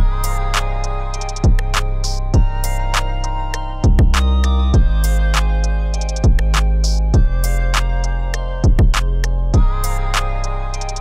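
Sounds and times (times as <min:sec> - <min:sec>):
held synth chords: 0:00.0 - 0:11.0
sharp high percussion: 0:00.0 - 0:11.0
deep kick drum hits: 0:02.4 - 0:02.6, 0:03.8 - 0:04.2, 0:04.8 - 0:05.0, 0:07.2 - 0:07.4, 0:08.6 - 0:09.0, 0:09.6 - 0:09.8.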